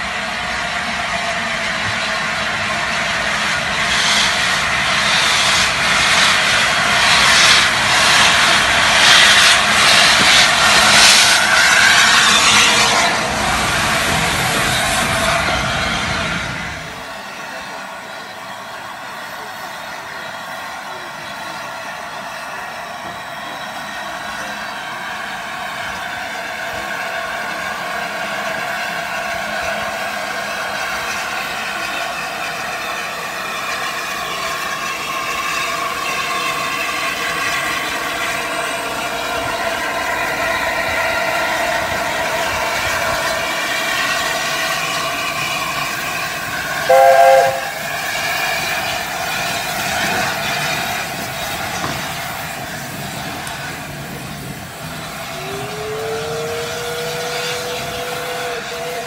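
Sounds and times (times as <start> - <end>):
steam locomotive hissing: 0.0 - 59.0
steam whistle blast: 46.7 - 48.2, 55.3 - 59.0.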